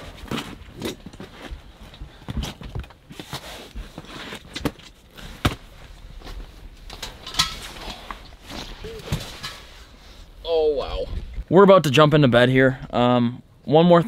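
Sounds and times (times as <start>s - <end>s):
clothing and sleeping bag rustling: 3.0s - 10.4s.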